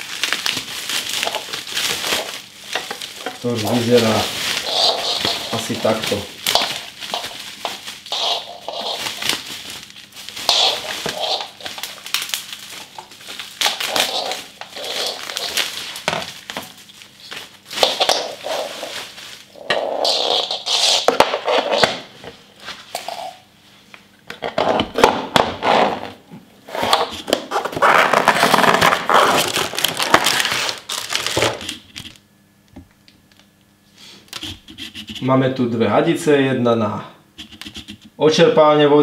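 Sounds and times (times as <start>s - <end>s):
bubble wrap crinkling: 0.0s - 23.4s, 24.6s - 32.2s.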